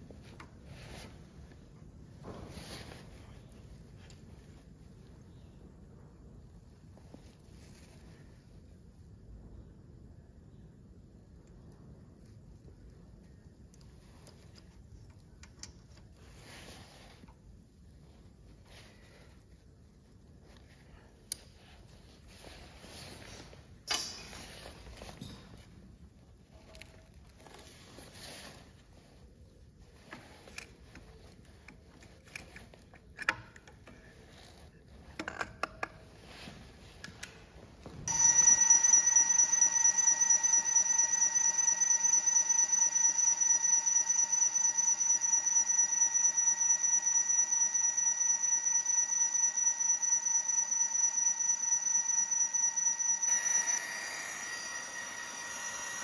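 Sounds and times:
high-pitched ringing whine: 38.1 - 56.0.

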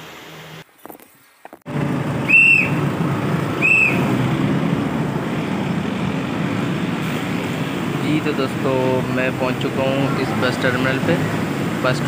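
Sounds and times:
road traffic: 0.0 - 12.0
high whistle-like tones: 2.2 - 2.8, 3.5 - 4.2.

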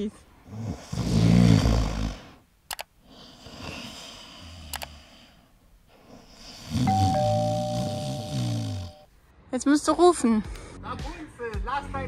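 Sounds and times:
double mouse clicks: 2.7 - 2.9, 4.7 - 4.9.

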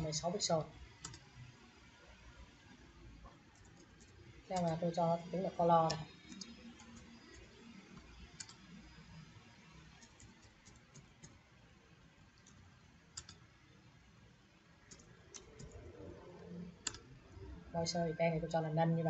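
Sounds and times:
computer keyboard keystrokes: 1.0 - 1.2, 3.5 - 4.8, 8.0 - 8.6, 10.0 - 11.4, 13.2 - 13.4, 14.9 - 15.8, 16.8 - 17.0.

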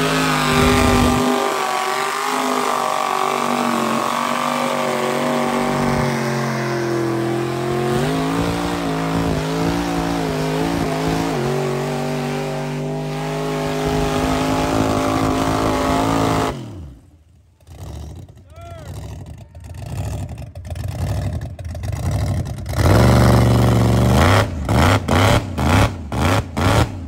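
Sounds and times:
truck engine revving: 0.0 - 27.0.

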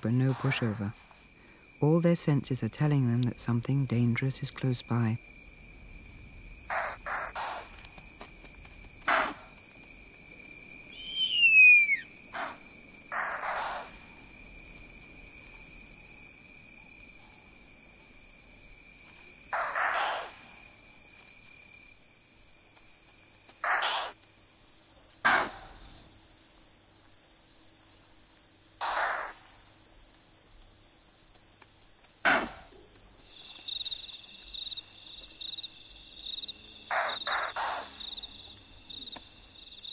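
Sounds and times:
night insects trilling: 0.0 - 39.9
shrill call falling in pitch: 10.9 - 12.1.

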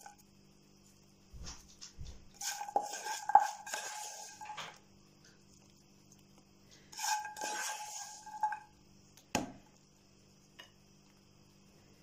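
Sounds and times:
wooden spoon scraping frying pan: 2.3 - 4.8, 6.8 - 8.8.

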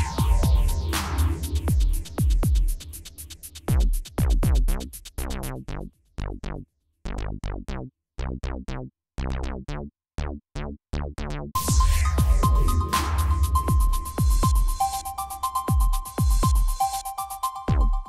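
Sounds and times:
falling synth hits: 0.0 - 2.6
electronic music with drum beat: 0.0 - 5.7, 11.6 - 18.0.

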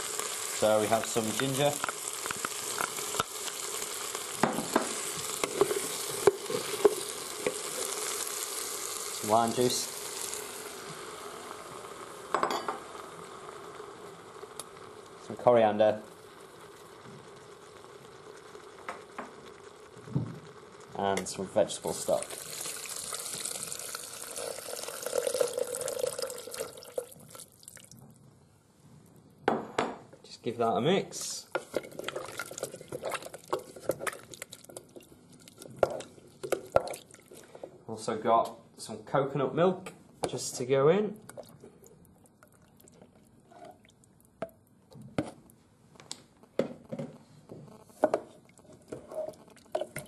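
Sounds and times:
liquid pouring and splashing: 21.9 - 28.0, 31.9 - 37.6, 41.2 - 44.4.

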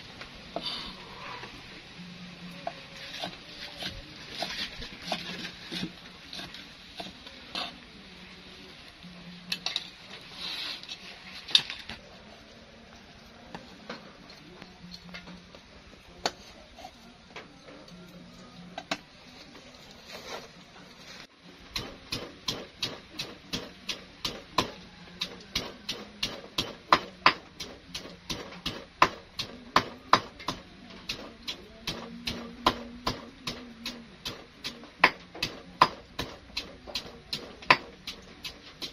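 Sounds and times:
pestle pounding in stone mortar: 21.7 - 31.2, 33.8 - 38.9.

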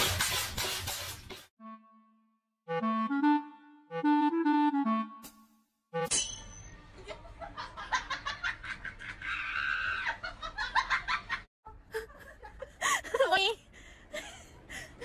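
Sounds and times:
person giggling and laughing: 7.0 - 15.0.

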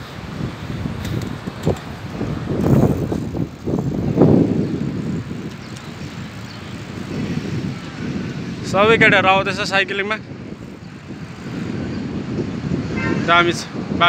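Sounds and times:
road traffic rumble: 0.0 - 14.0
wind on microphone: 0.0 - 14.0.

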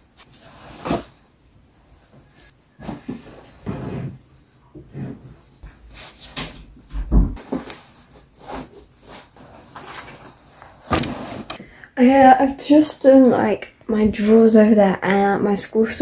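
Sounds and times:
fabric and cardboard rustling: 2.0 - 11.6.

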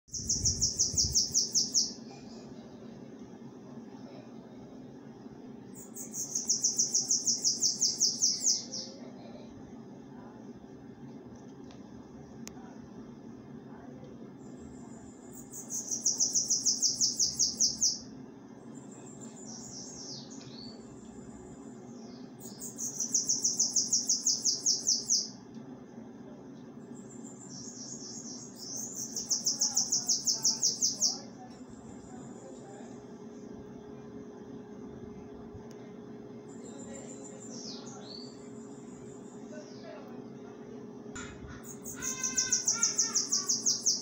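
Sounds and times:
bird singing buzzy song: 0.1 - 2.6, 5.6 - 9.5, 14.4 - 25.5, 26.6 - 31.4, 36.2 - 40.5, 41.2 - 44.0.

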